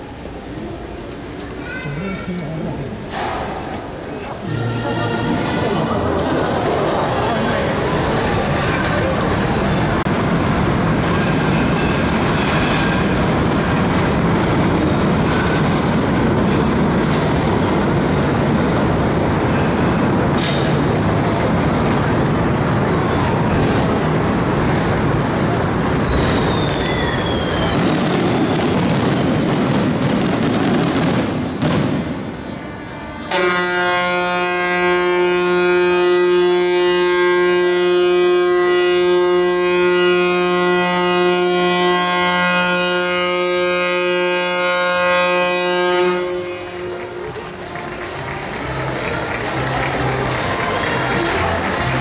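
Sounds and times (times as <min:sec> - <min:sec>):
broad rushing noise: 0:00.0 - 0:52.0
ship's horn long blast: 0:04.4 - 0:10.2, 0:32.3 - 0:47.4
sharp cracks: 0:26.1 - 0:32.4.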